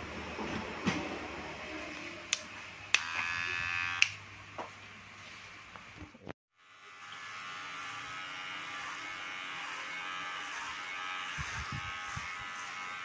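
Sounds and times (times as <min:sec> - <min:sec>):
hair clipper buzzing: 0:02.3 - 0:04.2, 0:06.6 - 0:13.0.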